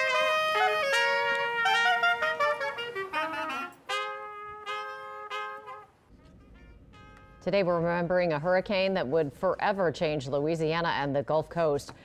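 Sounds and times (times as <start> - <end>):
clarinet and trumpet melody: 0.0 - 8.2.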